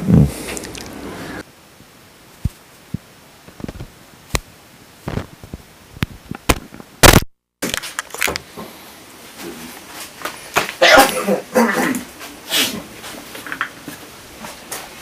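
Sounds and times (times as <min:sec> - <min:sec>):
loud handling crackle: 0:05.1 - 0:08.5.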